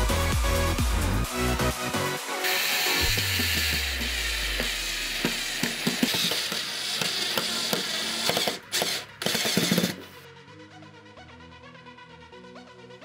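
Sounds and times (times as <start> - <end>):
electronic dance music: 0.0 - 7.3.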